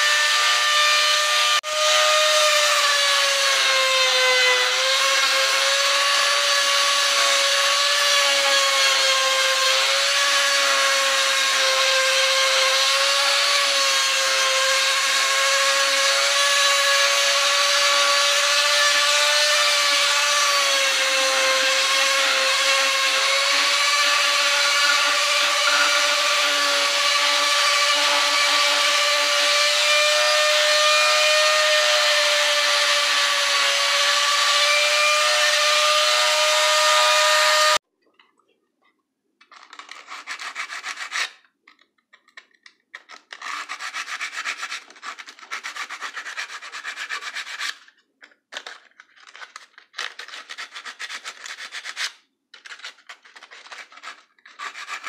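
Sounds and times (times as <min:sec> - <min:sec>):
hand sanding wood: 0:00.0 - 0:37.8, 0:40.1 - 0:41.2, 0:43.4 - 0:47.8, 0:53.7 - 0:55.0
rotary tool grinding wood: 0:00.0 - 0:37.8, 0:53.2 - 0:55.0.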